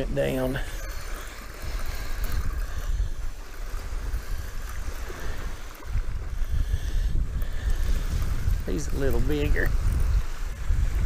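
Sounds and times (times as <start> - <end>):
fishing reel whirring: 0.0 - 11.0
waves splashing on shore: 0.0 - 11.0
wind buffeting microphone: 0.0 - 11.0.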